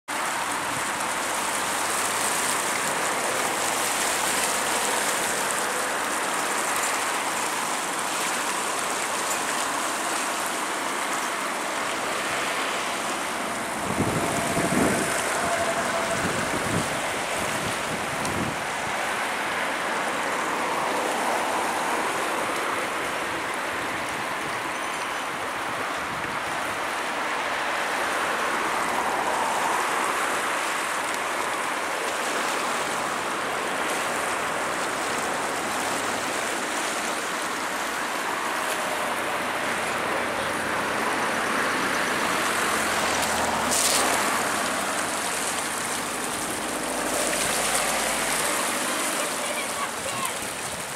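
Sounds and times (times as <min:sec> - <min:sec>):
river water rushing: 0:00.1 - 0:50.9.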